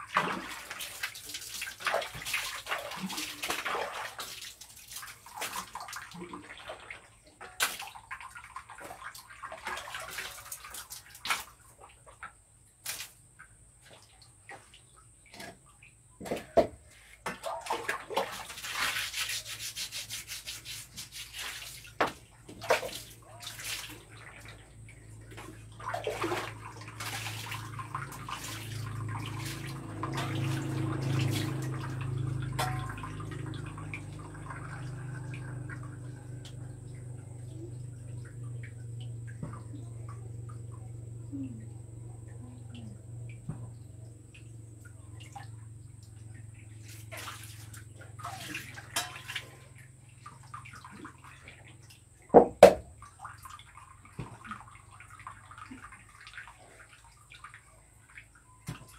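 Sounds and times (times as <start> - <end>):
water splashing: 0.0 - 58.9
running water rushing: 17.7 - 36.3.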